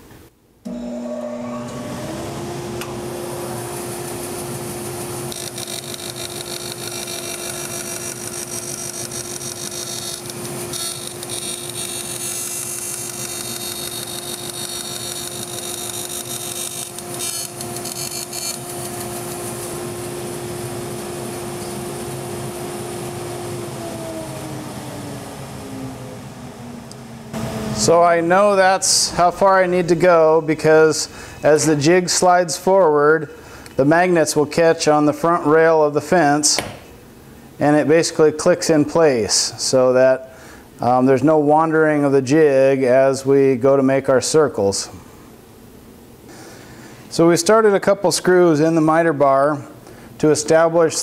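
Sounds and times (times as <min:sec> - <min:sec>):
dust collector humming: 0:00.6 - 0:32.9
bandsaw running: 0:00.7 - 0:24.8
bandsaw blade cutting wood: 0:04.8 - 0:19.7.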